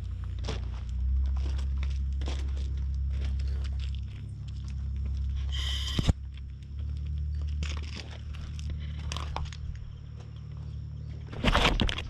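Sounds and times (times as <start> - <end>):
crunching and scraping on gravel: 0.0 - 12.0
steady low rumble: 0.0 - 12.0
short high-pitched tone: 5.5 - 6.1.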